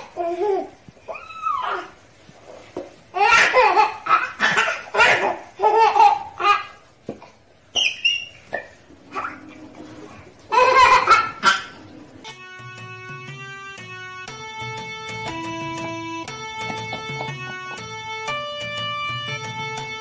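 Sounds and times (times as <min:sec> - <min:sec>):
baby laughing: 0:00.0 - 0:02.0, 0:03.1 - 0:06.9, 0:10.4 - 0:11.8
baby squealing: 0:00.2 - 0:02.0.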